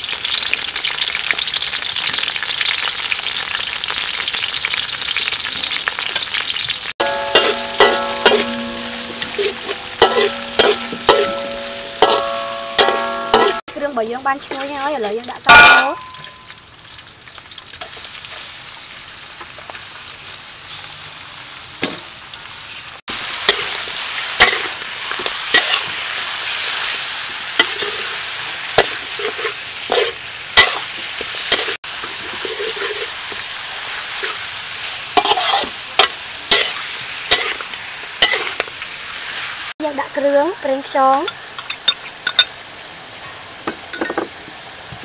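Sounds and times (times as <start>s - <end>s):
food sizzling in a wok: 0.0s - 45.0s
metal spatula scraping a wok: 7.0s - 13.6s, 23.2s - 34.5s, 35.2s - 38.7s.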